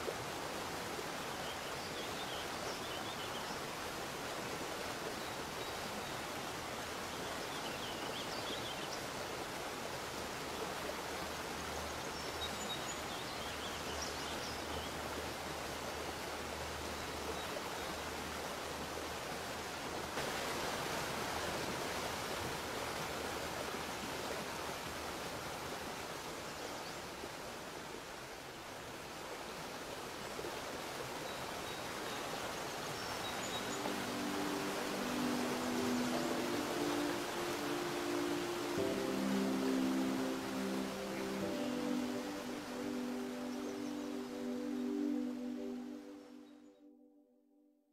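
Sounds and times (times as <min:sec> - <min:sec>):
waterfall rushing: 0:09.2 - 0:26.3, 0:30.8 - 0:46.2.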